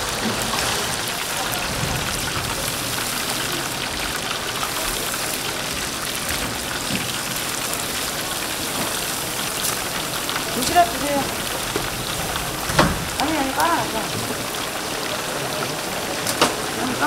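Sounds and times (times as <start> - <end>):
oil sizzling in deep fryer: 0.0 - 17.0.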